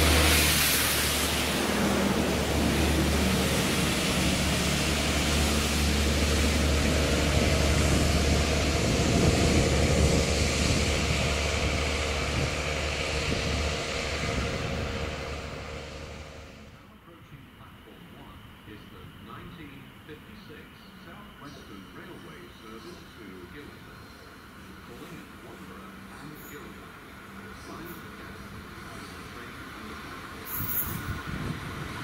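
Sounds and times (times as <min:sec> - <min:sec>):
steady hiss: 0:00.0 - 0:08.7, 0:17.0 - 0:32.0
diesel locomotive engine drone: 0:00.0 - 0:32.0
train wheel and rail noise: 0:00.0 - 0:32.0.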